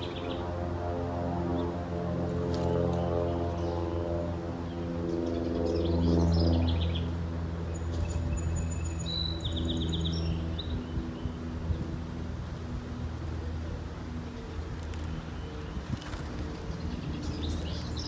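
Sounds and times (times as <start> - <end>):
birds chirping and trilling: 0.0 - 12.3, 12.9 - 18.0
steady low hum: 0.0 - 18.0.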